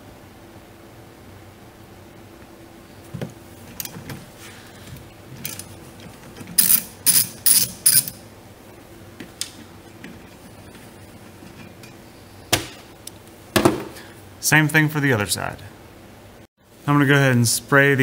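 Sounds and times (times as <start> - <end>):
ratchet wrench clicking: 6.6 - 8.2.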